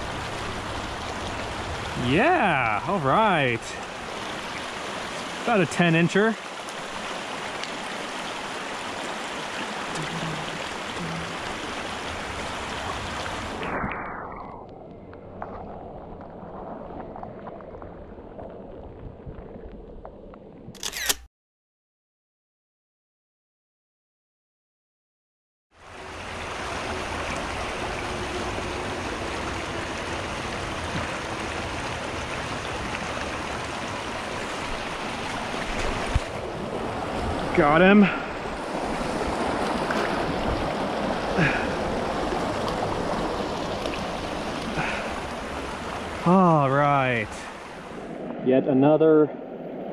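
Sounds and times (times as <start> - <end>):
water rushing over rocks: 0.0 - 14.6, 25.8 - 48.5
muffled underwater water sound: 0.0 - 20.8, 25.8 - 49.9.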